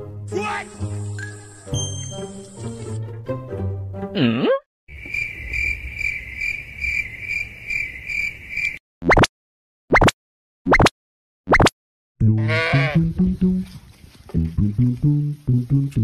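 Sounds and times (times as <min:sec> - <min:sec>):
crickets chirping: 0:04.9 - 0:08.8.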